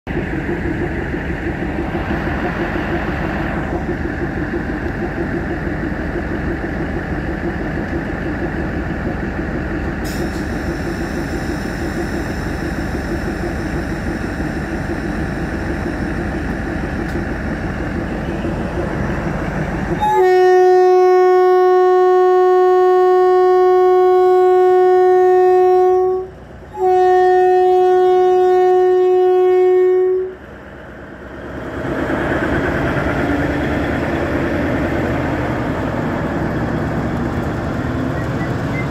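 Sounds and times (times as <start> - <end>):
diesel train engine running: 0.1 - 38.9
train horn blasts: 19.9 - 30.4.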